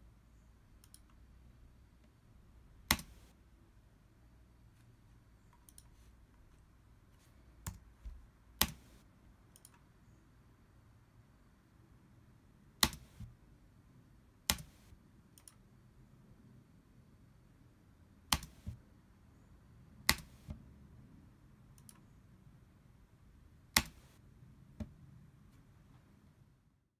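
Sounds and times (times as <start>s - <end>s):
computer mouse clicks: 0.8s - 1.2s, 2.9s - 3.4s, 5.5s - 6.6s, 7.6s - 7.9s, 8.6s - 9.9s, 12.8s - 13.3s, 14.5s - 15.6s, 18.3s - 18.8s, 20.1s - 20.6s, 21.8s - 22.1s, 23.7s - 24.2s.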